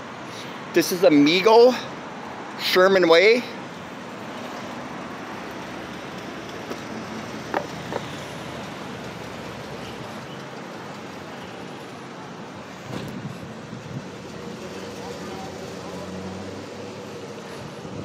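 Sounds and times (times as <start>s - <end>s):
cars passing on street: 0.0s - 18.0s.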